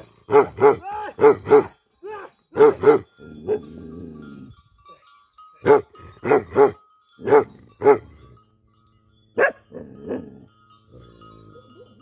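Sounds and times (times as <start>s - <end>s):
dog barking: 0.3s - 1.7s, 2.6s - 3.6s, 5.6s - 8.0s, 9.4s - 9.6s.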